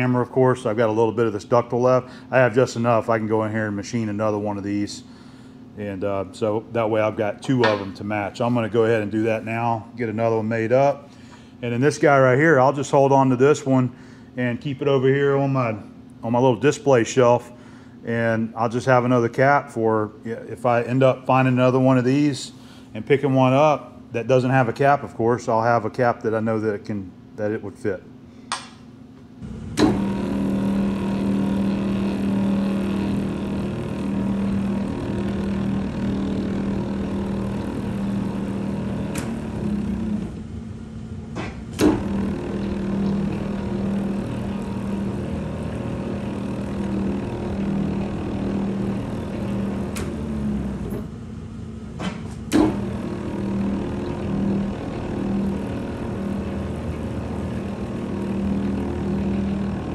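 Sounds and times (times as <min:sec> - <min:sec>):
metal lathe humming: 0:00.0 - 0:12.7, 0:29.4 - 0:59.9.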